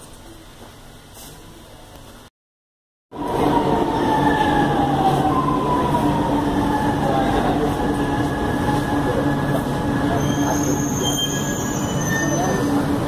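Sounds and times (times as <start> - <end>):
metro train rumble and hum: 3.1 - 13.0.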